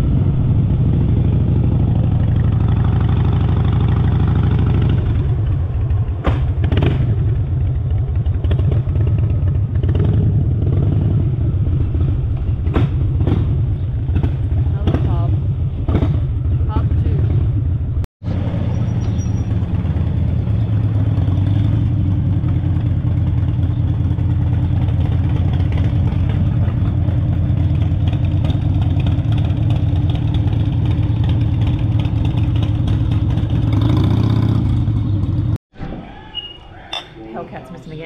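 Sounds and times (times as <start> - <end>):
motorcycle engine running: 0.0 - 35.6
dishes clinking: 36.8 - 37.6.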